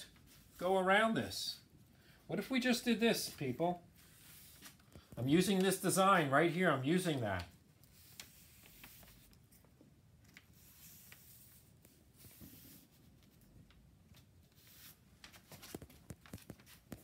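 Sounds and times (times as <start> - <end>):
brush strokes on paper: 0.1 - 0.9, 3.1 - 4.8, 7.9 - 9.4, 10.5 - 13.4, 14.5 - 15.1.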